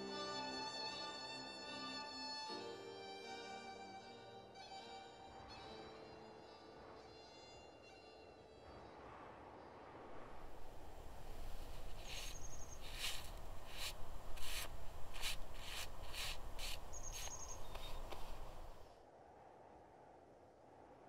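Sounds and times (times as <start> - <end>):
low rumble: 9.0 - 16.9
brushing snow off stone: 10.3 - 18.8
high chirps: 11.8 - 14.6, 15.6 - 18.3.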